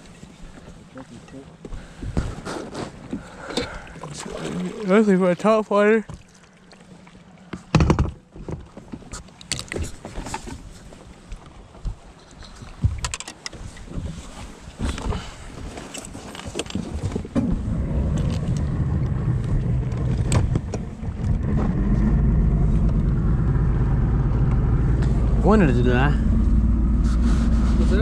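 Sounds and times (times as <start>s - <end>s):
outboard motor running: 17.2s - 28.0s.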